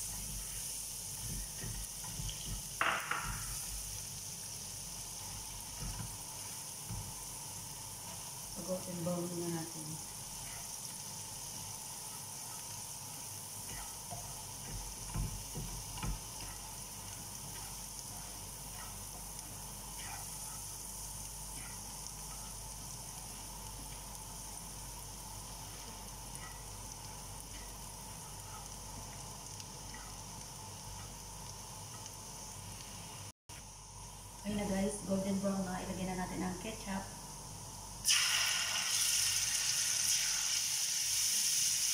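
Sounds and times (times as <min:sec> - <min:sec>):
garlic sizzling in butter: 0:00.0 - 0:41.9.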